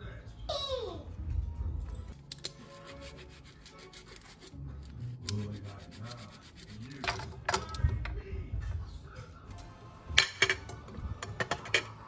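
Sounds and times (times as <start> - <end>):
cheese being grated: 2.6 - 7.0.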